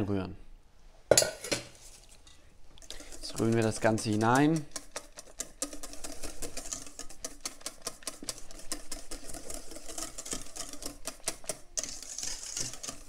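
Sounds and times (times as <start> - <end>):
whisk scraping metal bowl: 2.8 - 13.0.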